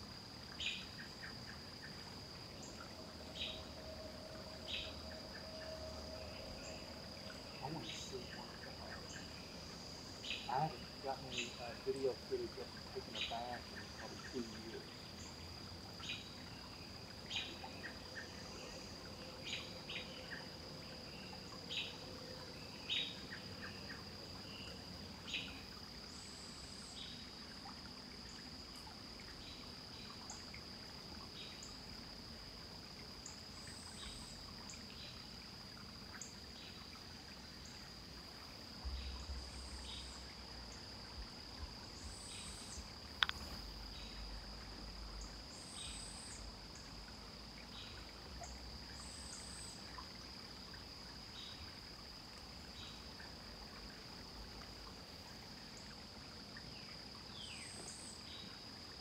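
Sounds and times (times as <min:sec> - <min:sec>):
high-pitched insect drone: 0:02.6 - 0:15.3.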